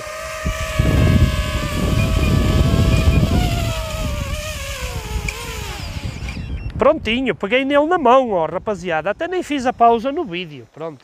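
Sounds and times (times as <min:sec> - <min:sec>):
drone propellers whining: 0:00.0 - 0:06.8
prop wash rumbling on microphone: 0:00.0 - 0:07.5.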